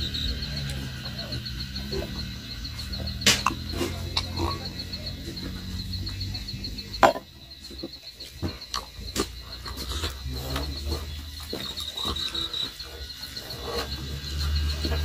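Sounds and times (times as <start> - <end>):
cricket chirping: 0.0 - 15.0
sharp clicks and knocks: 3.1 - 4.4.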